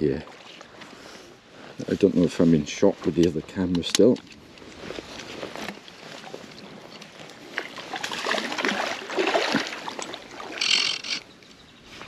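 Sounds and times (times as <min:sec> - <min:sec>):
fish splashing in water: 0:07.4 - 0:11.2.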